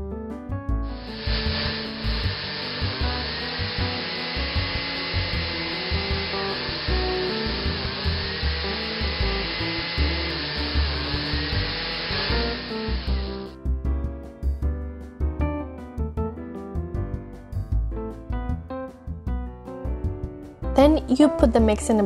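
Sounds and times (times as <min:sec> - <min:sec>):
blender motor running: 0:00.9 - 0:13.6.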